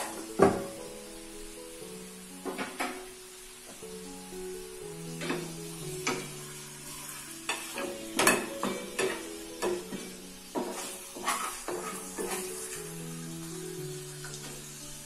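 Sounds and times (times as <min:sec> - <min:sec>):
chicken sizzling in a frying pan: 0:00.0 - 0:15.0
utensil scraping and knocking pan: 0:07.5 - 0:12.7.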